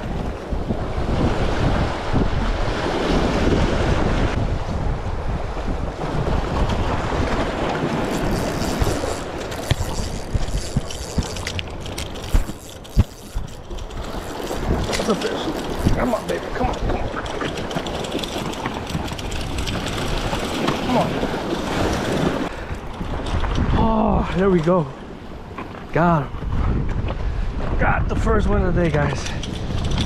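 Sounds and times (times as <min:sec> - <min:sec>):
waves washing against rocks: 0:00.0 - 0:23.8
wind buffeting microphone: 0:00.0 - 0:30.0.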